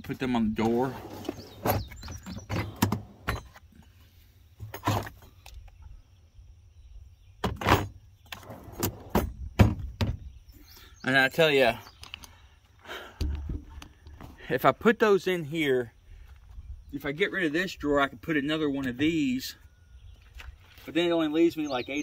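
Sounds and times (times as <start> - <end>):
plastic drawers knocking and clunking: 1.1 - 3.6, 8.6 - 10.4.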